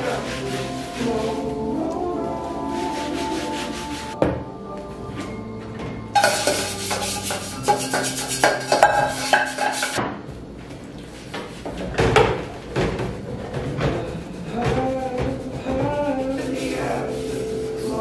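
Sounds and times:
background music: 0.0 - 10.6, 12.6 - 18.0
dishes clattering in a sink: 5.8 - 10.2, 11.8 - 16.5.

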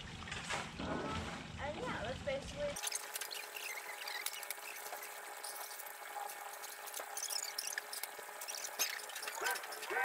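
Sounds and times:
water trickling: 0.0 - 10.0
small high ticks and chirps: 2.8 - 10.0.

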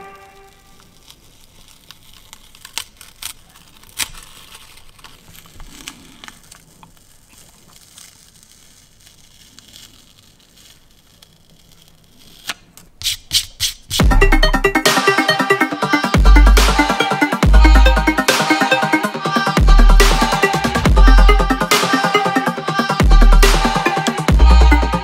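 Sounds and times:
tape peeling off card: 0.0 - 14.5
loud electronic music: 14.0 - 25.0
sharp hits: 14.0 - 25.0.

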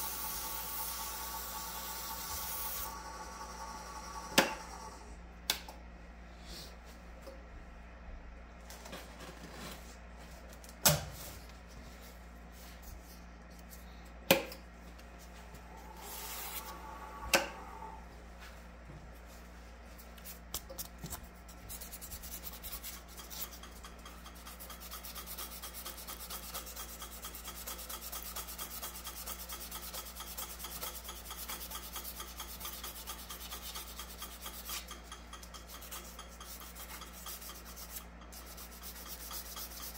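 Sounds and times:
sanding hiss on spinning wood: 0.0 - 4.9
lathe motor hum: 0.0 - 5.1, 15.6 - 18.1.

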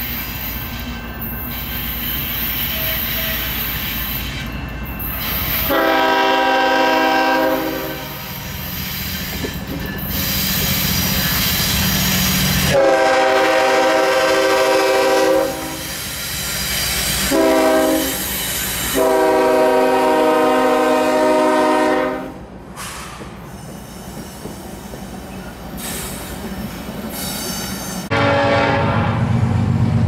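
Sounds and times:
locomotive horn blasts: 5.6 - 8.3, 12.7 - 15.8, 17.2 - 18.2, 19.0 - 22.4, 28.1 - 29.3.

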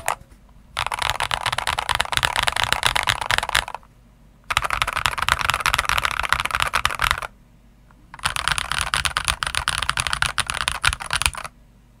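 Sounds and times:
fast typing on mechanical keyboard: 0.8 - 3.8, 4.5 - 7.3, 8.2 - 11.5.

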